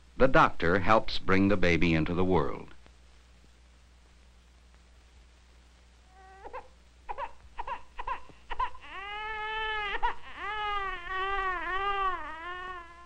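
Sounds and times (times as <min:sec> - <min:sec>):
newborn baby crying: 0:06.1 - 0:13.0.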